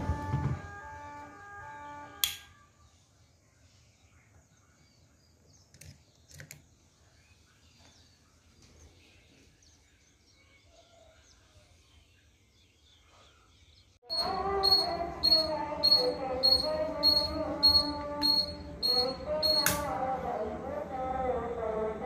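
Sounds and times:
level-crossing hooter: 14.0s - 20.6s
push button clicks: 14.6s - 19.9s
switch click: 17.7s - 19.9s.

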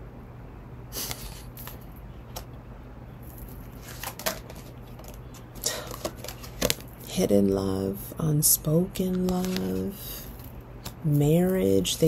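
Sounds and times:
faint low hum: 0.0s - 12.0s
cards rustling and flicking: 3.3s - 7.1s, 9.0s - 11.7s.

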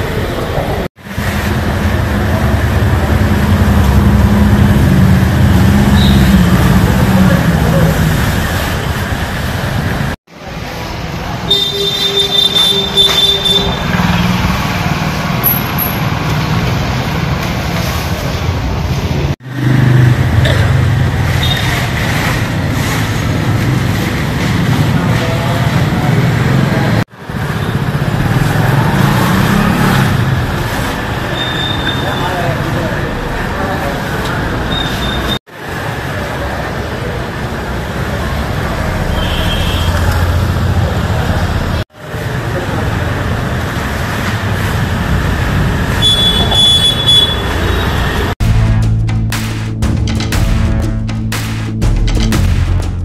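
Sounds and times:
street traffic rumble: 0.0s - 53.0s
low vehicle rumble: 0.6s - 10.2s.

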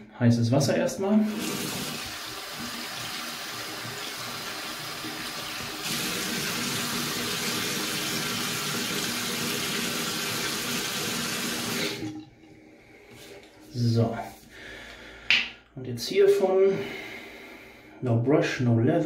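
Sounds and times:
sink tap running water: 1.2s - 12.3s.

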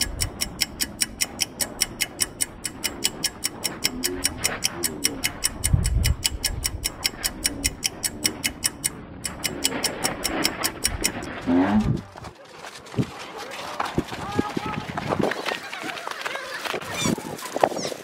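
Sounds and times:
steady ticking: 0.0s - 12.2s.

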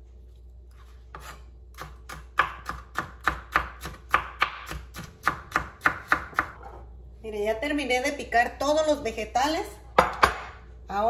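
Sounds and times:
knife chopping on plastic board: 1.2s - 6.7s.

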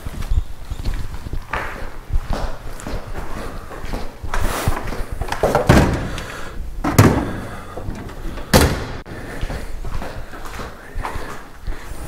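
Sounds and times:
knocks and thuds: 5.4s - 9.0s.

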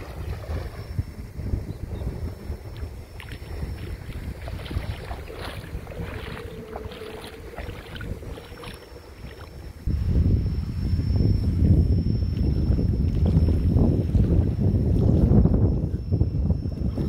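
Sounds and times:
shallow water splashing: 0.0s - 1.0s, 2.7s - 9.8s
wind buffeting microphone: 0.0s - 17.0s.

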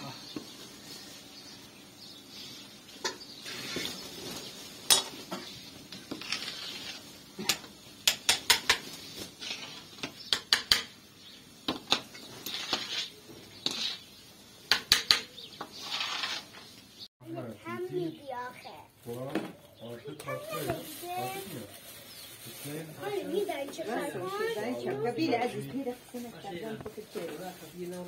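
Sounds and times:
paddle scraping a metal pot: 4.9s - 7.6s, 9.4s - 10.2s, 12.2s - 14.1s, 15.6s - 16.6s.

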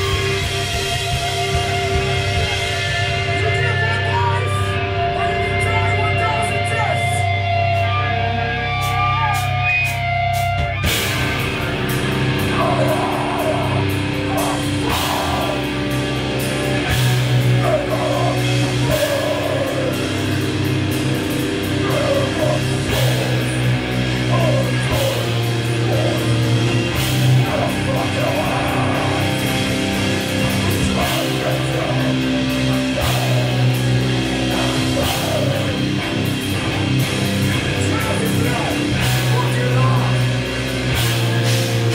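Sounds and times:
drums: 0.0s - 41.9s
guitar and bass notes: 0.0s - 41.9s
rock band playing: 0.0s - 41.9s
vocalist singing: 12.4s - 40.5s.

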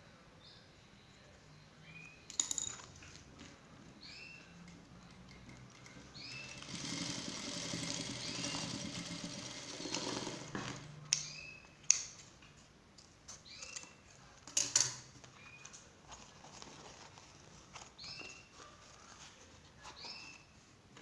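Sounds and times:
sewing machine running: 6.2s - 10.9s.

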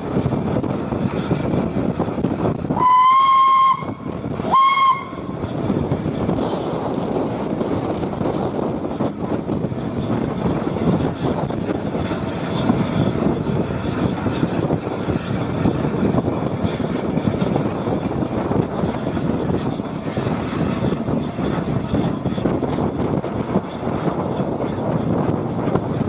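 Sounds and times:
locomotive running noise: 0.0s - 26.0s
wind: 0.0s - 26.0s
steam whistle blasts: 2.8s - 5.3s.

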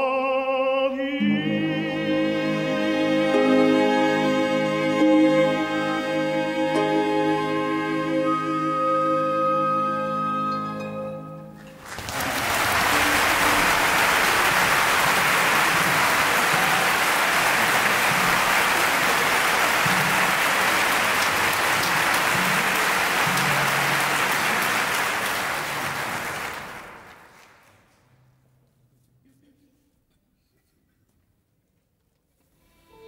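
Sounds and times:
audience applauding: 11.7s - 28.0s.

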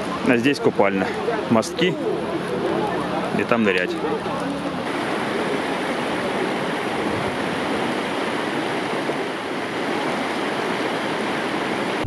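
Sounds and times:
river rushing over rocks: 2.7s - 12.0s.

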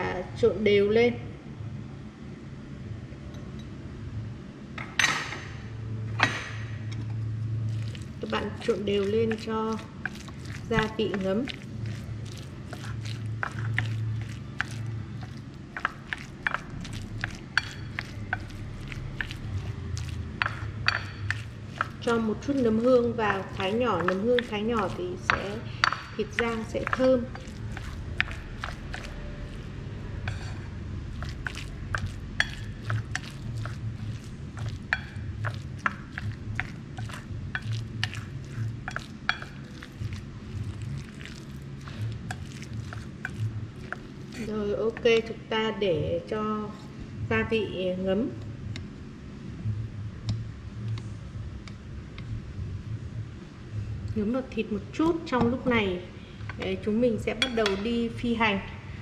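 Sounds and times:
low steady hum: 0.0s - 59.0s
chopsticks tapping a plate: 8.6s - 45.3s.

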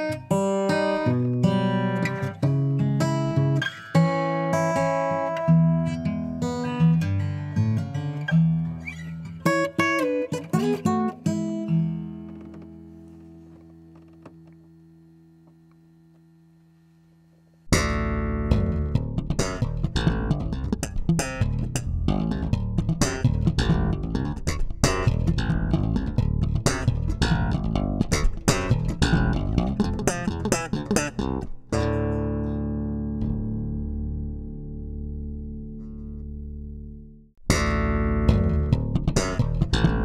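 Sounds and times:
acoustic guitar notes: 0.0s - 16.0s, 17.3s - 40.0s
plucked electric bass guitar: 17.7s - 40.0s.

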